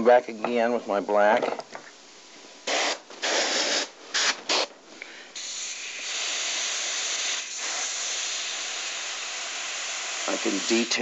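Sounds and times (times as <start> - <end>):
airbrush spray hiss: 2.6 - 4.7, 5.4 - 11.0.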